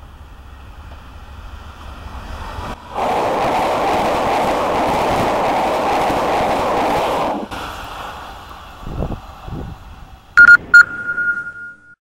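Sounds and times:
passenger train rushing past: 0.0 - 10.4
short high beeps: 10.4 - 12.0.

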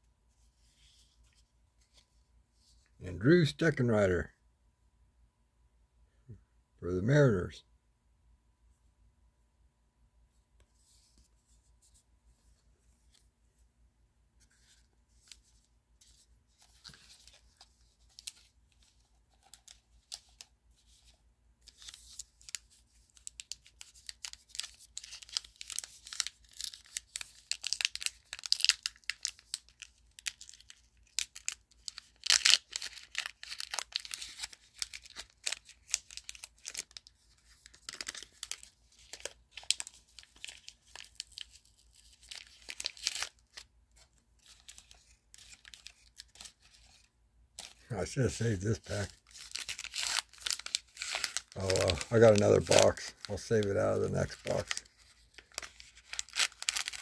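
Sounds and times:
plastic wrapper crinkling and tearing: 14.5 - 57.0.

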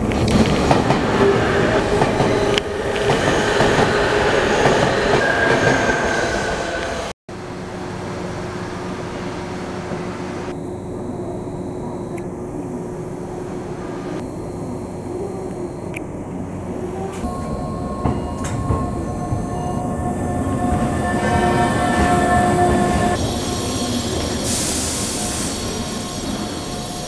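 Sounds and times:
electric train rumble and hum: 0.0 - 27.0
steady high tones: 10.5 - 27.0.

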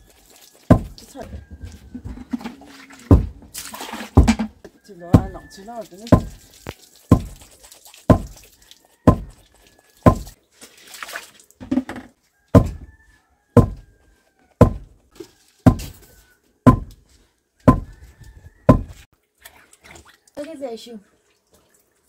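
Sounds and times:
pestle pounding in stone mortar: 0.7 - 1.0, 3.1 - 3.4, 4.0 - 5.4, 6.1 - 6.4, 7.1 - 7.4, 8.1 - 8.4, 9.0 - 9.3, 10.0 - 10.4, 11.6 - 12.8, 13.6 - 13.8, 14.6 - 15.0, 15.6 - 16.0, 16.7 - 17.0, 17.6 - 18.0, 18.7 - 19.0.

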